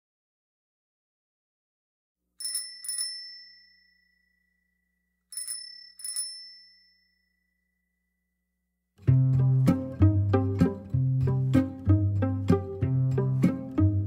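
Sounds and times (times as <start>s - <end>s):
small bell ringing: 2.4s - 8.3s.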